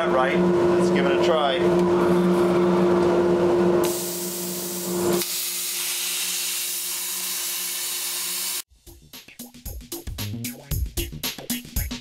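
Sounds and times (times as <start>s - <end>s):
steady machine hum: 0.0s - 5.2s
plasma cutter hissing: 3.8s - 8.6s.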